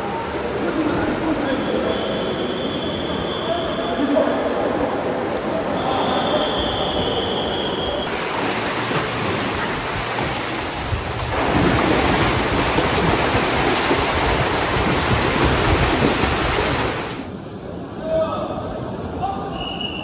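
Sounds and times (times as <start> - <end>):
water splashing from swimmer: 4.8 - 17.3.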